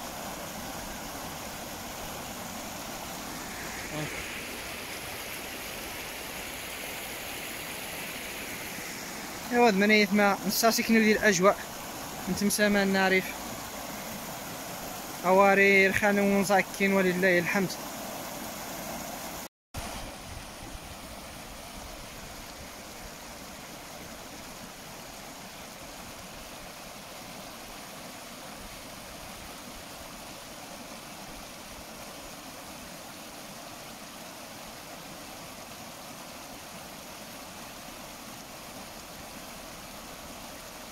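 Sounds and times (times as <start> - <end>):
floodwater rushing over gravel: 0.0 - 18.7.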